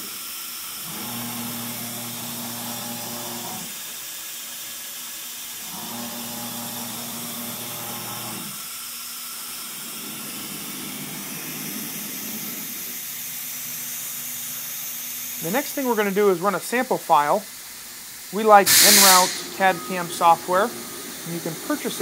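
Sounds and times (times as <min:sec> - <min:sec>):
hiss of cooling air: 0:08.0 - 0:22.0
low hum of machine drives: 0:09.7 - 0:13.4.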